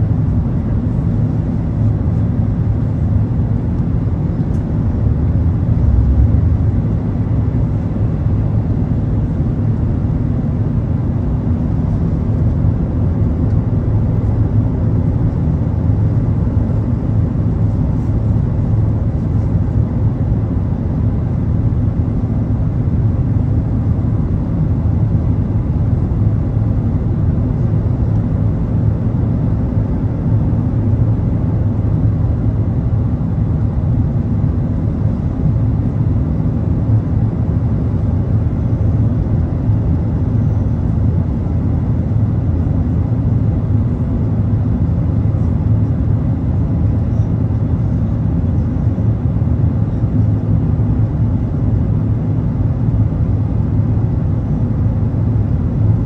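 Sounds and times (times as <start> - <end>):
jet engine rumble in cabin: 0.0 - 56.0.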